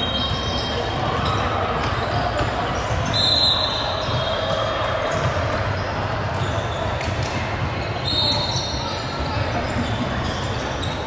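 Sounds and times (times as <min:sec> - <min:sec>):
voices of players and spectators: 0:00.0 - 0:11.0
basketball bouncing on court: 0:00.1 - 0:03.2, 0:03.9 - 0:08.0.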